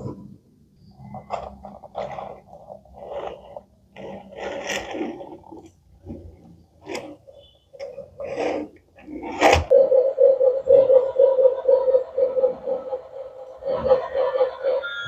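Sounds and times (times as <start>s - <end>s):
plastic toy train scraping on cloth: 1.1s - 9.7s.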